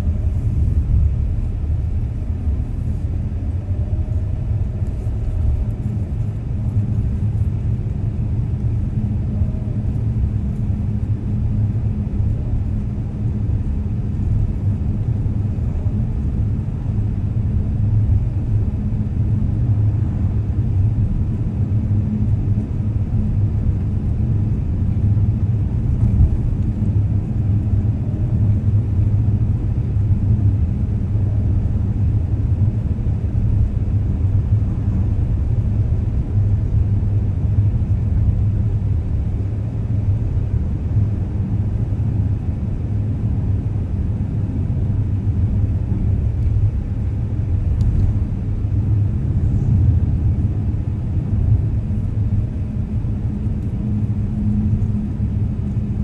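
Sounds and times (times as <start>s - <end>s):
car engine and road noise: 0.0s - 17.3s.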